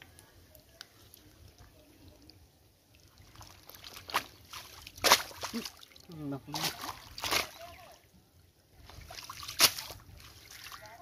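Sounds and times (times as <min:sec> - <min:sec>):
water sloshing and splashing: 0:02.8 - 0:11.0.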